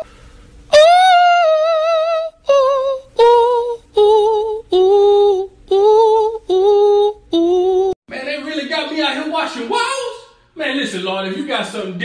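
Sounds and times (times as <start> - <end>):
high voice singing with vibrato: 0.7 - 8.0.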